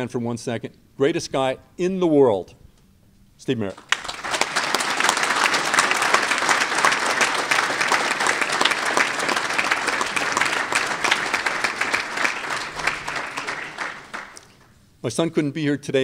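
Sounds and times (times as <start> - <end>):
crowd applauding: 3.8 - 14.7.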